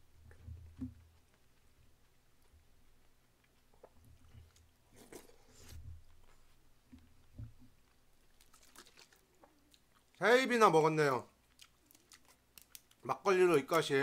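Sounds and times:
person chewing food: 0:00.2 - 0:10.2, 0:11.2 - 0:13.1.

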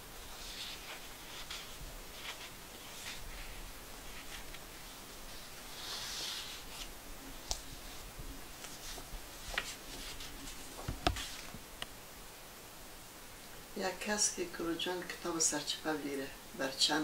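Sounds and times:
paper rustling: 0:00.2 - 0:11.6.

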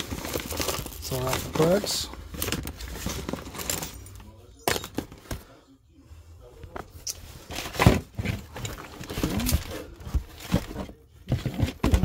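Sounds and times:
packaging crinkling and rustling: 0:00.0 - 0:05.4
items knocking: 0:07.4 - 0:12.0.

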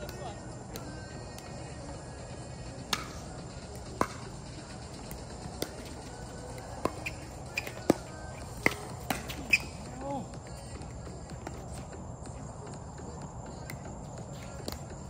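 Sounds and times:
paddles striking ball: 0:02.9 - 0:04.4, 0:05.0 - 0:09.8.

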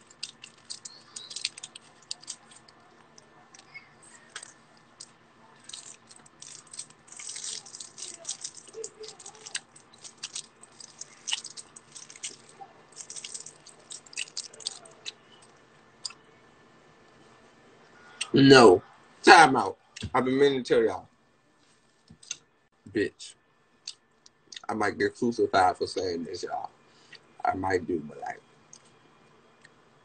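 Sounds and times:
faint clicks and crackles: 0:00.0 - 0:16.2.

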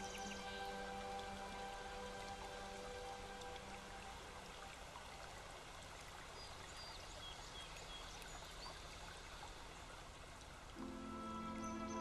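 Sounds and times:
creek water trickling: 0:00.0 - 0:12.0.

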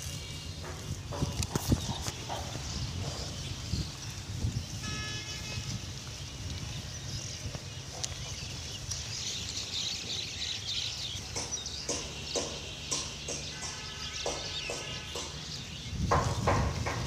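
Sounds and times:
wild boar rooting and feeding: 0:00.0 - 0:04.3, 0:06.0 - 0:17.0
high chirping calls: 0:05.8 - 0:17.0.

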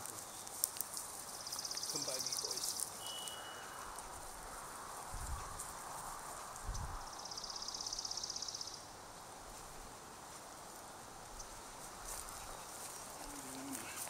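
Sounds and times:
songbird trill: 0:00.0 - 0:04.7, 0:06.5 - 0:09.0, 0:11.3 - 0:14.0
steady outdoor hiss: 0:00.0 - 0:14.0.

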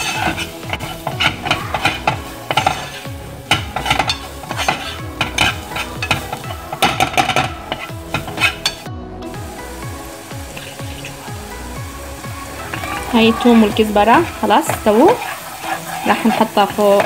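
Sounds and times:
metal spoon scraping pan: 0:00.0 - 0:08.9, 0:12.7 - 0:17.0
garlic sizzling in oil: 0:00.0 - 0:17.0.

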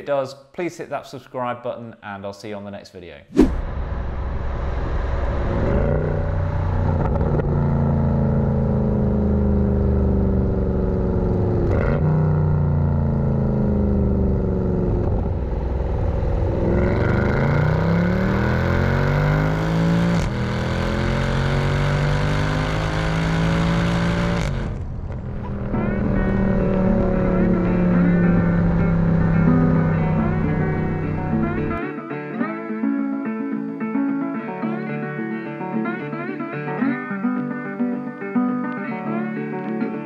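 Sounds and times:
road and tyre rumble: 0:03.4 - 0:31.8
car engine from inside cabin: 0:06.4 - 0:31.8.

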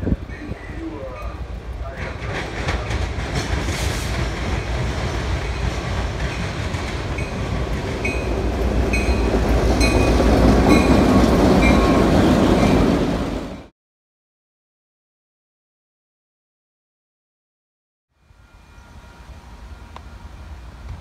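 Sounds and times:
diesel locomotives passing: 0:00.0 - 0:13.7, 0:18.2 - 0:21.0
wheels clattering on rails: 0:00.2 - 0:13.1
bell ringing: 0:08.0 - 0:13.0.

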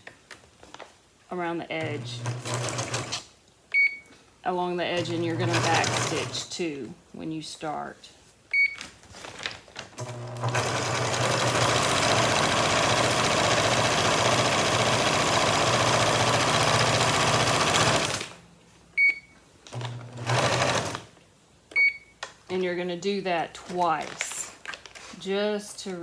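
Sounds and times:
sewing machine stitching: 0:01.8 - 0:03.2, 0:05.0 - 0:06.4, 0:10.0 - 0:18.4, 0:19.7 - 0:21.1.

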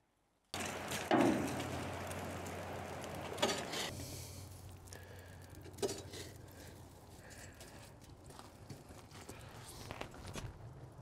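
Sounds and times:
poker scraping and clanking metal: 0:03.2 - 0:04.0.

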